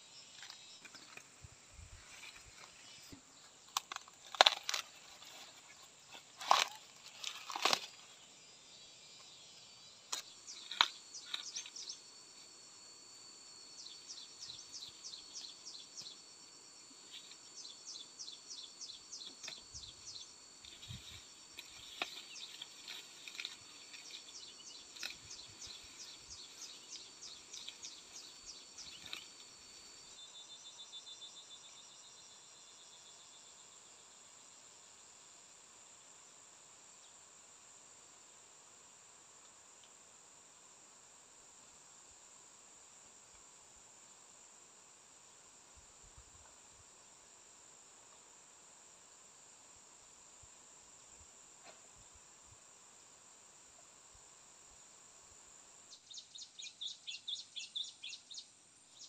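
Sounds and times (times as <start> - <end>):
high insect drone: 0.0 - 59.0
insects chirping in pulses: 0.0 - 59.0
corn husk ripping: 6.4 - 8.0.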